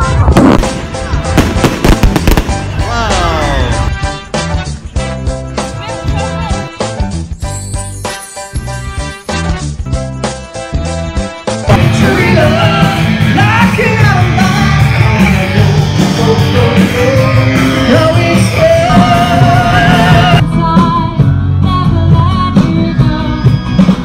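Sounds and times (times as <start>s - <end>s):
drums: 0.0s - 24.0s
person singing: 2.8s - 4.0s, 11.7s - 23.6s
amplified electric guitars: 11.6s - 24.0s.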